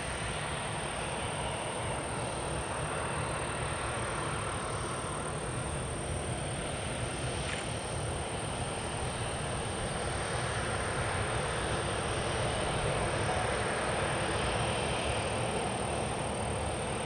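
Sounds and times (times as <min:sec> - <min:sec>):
jet engines rumbling: 0:00.0 - 0:17.0.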